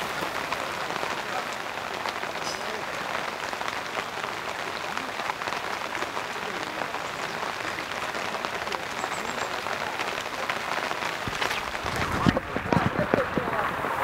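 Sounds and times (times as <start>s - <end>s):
steady rain falling: 0.0s - 14.0s.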